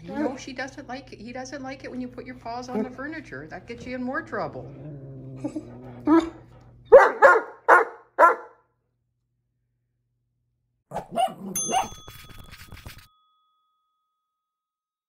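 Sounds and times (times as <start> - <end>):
dog barking: 6.9 - 8.6, 10.9 - 12.0
ringing chime: 11.6 - 14.8.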